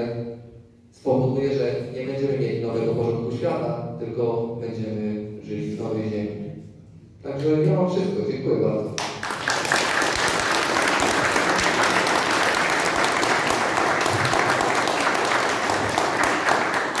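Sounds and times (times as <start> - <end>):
audience applauding: 9.0 - 17.0.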